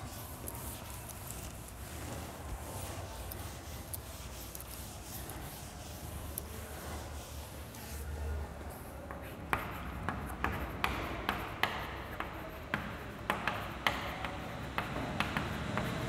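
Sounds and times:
chalk tapping on a blackboard: 0.0s - 8.0s, 8.8s - 16.0s.

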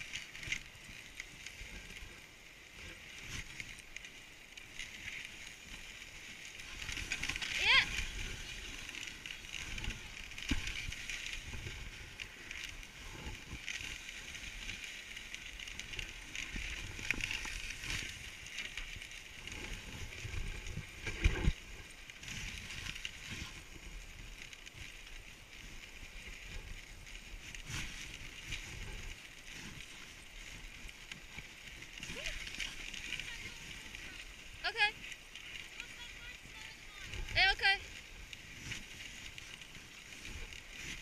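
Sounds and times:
sled runners scraping over snow: 0.0s - 41.0s.

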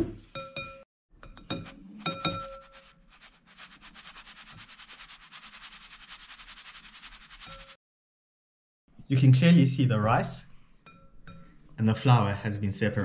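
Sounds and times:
spoon clinking glass bowl: 0.3s - 2.9s
kitchen sieve shaken rapidly: 2.0s - 7.8s.

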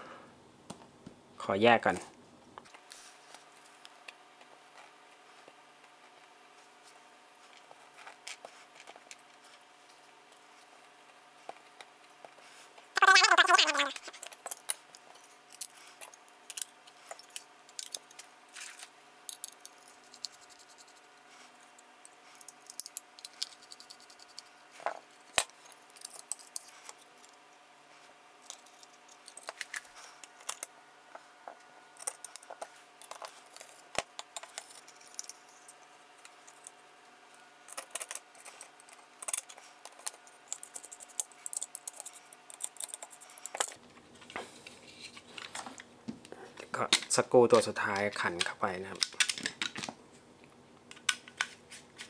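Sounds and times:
small parts clicking and clattering: 13.0s - 27.4s, 28.4s - 30.7s, 31.9s - 36.8s, 37.4s - 44.3s, 46.9s - 50.0s.

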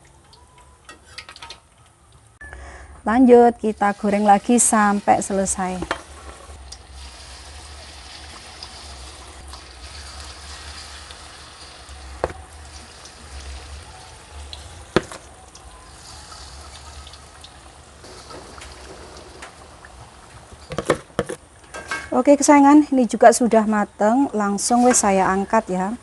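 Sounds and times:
fritters sizzling in hot oil: 3.6s - 20.6s.

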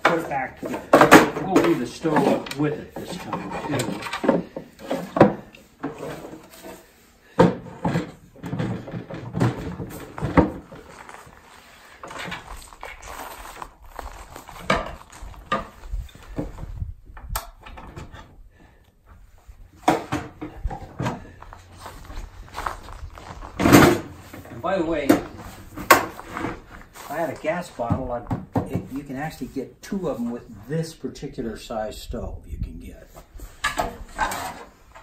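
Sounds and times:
wooden knocks and clunks: 0.0s - 11.1s, 14.6s - 18.4s, 19.1s - 29.1s.

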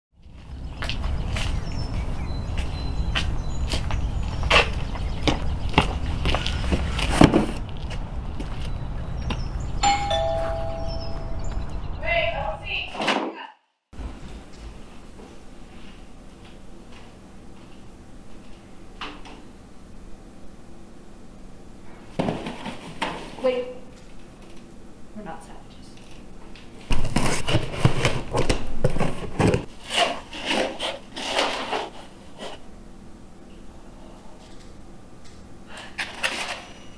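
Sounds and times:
footsteps on concrete: 0.2s - 9.5s
tape and cardboard scraping: 6.4s - 7.7s, 26.9s - 32.6s
two-tone doorbell chime: 9.8s - 11.5s
cardboard box thump: 26.9s - 29.7s.

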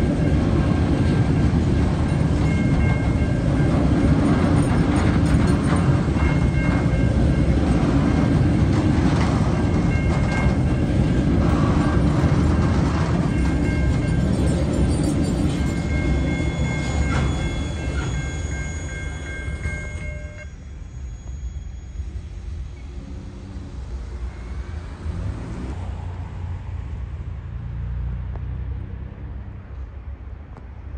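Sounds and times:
train wheels rumbling on rails: 0.0s - 28.1s
faint high steady tones: 13.3s - 25.3s.

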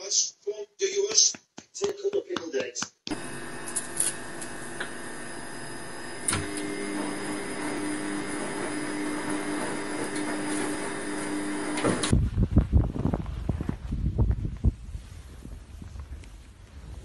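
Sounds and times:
machine humming and hissing: 3.1s - 12.1s.

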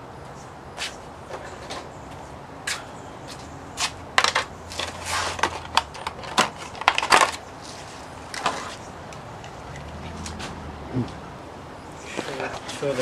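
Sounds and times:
sharp cracks and crunches: 3.8s - 10.6s.

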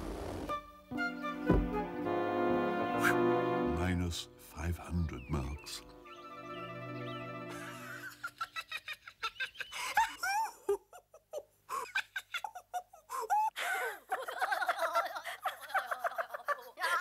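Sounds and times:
held musical chord: 0.8s - 7.7s.

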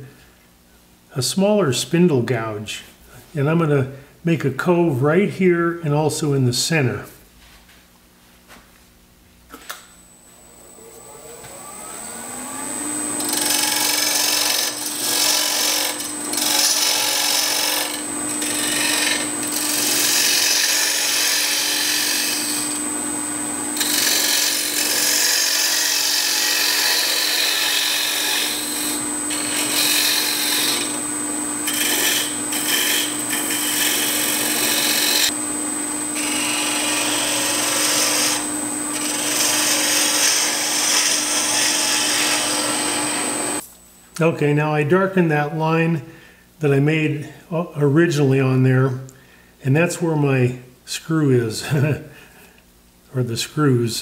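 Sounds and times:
wood lathe humming: 10.6s - 43.6s
gouge cutting spinning wood: 11.2s - 43.6s
thin high whine: 21.9s - 24.7s, 28.0s - 40.3s, 42.2s - 43.7s.

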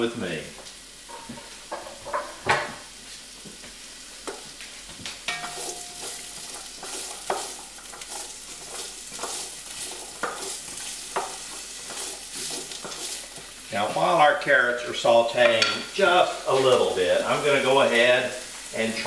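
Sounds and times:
carrots sizzling in a pot: 0.0s - 19.0s
wooden spoon scraping a pot: 5.3s - 13.7s.

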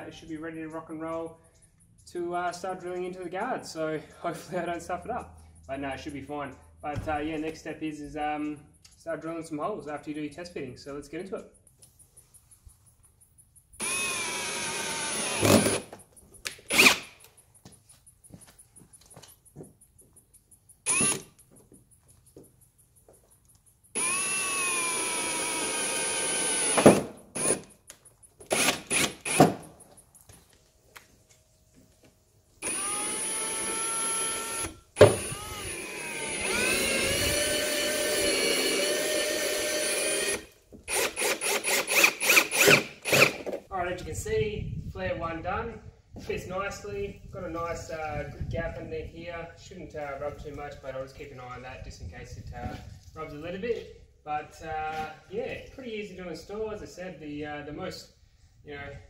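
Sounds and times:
cordless drill drilling: 13.8s - 15.9s, 16.6s - 17.3s, 20.8s - 21.4s, 24.0s - 27.8s, 28.4s - 29.7s, 32.6s - 43.6s.

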